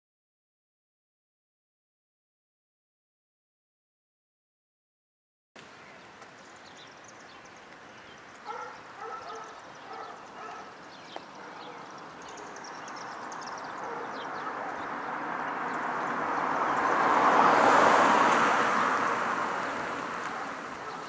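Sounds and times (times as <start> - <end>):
birds chirping: 5.6 - 21.0
dog barking: 8.4 - 12.6, 13.8 - 14.9, 20.2 - 21.0.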